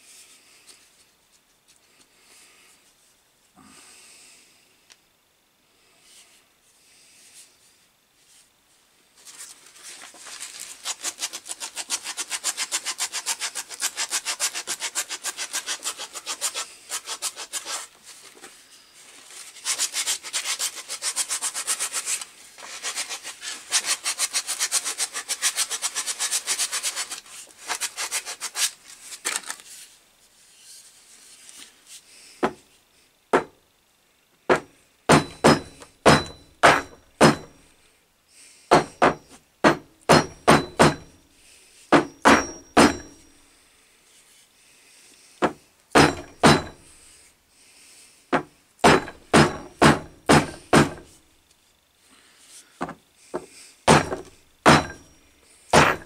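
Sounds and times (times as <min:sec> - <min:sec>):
sharp wooden knocks: 0:34.5 - 0:37.6, 0:38.7 - 0:41.1, 0:41.9 - 0:43.2, 0:45.4 - 0:46.8, 0:48.3 - 0:51.1, 0:52.8 - 0:55.1, 0:55.8 - 0:56.0.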